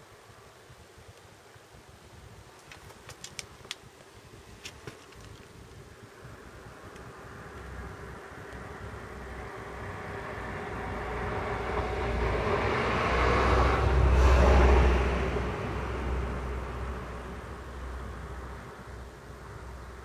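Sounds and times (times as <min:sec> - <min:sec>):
vehicle passing by: 0:07.1 - 0:19.0.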